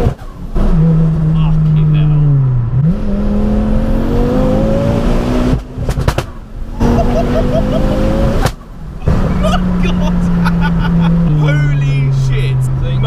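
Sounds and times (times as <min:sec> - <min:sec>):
car engine under full throttle: 0:00.0 - 0:13.0
exhaust cracks: 0:05.4 - 0:13.0.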